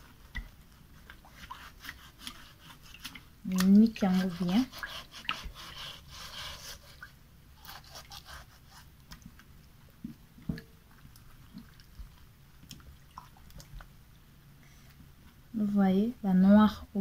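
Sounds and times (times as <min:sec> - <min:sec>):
sponge scrubbing fish skin: 0:00.0 - 0:09.2.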